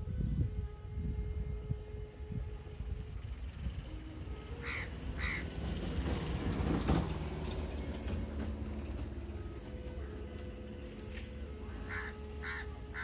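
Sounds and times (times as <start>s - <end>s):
crow cawing: 4.6s - 5.5s, 11.9s - 13.0s.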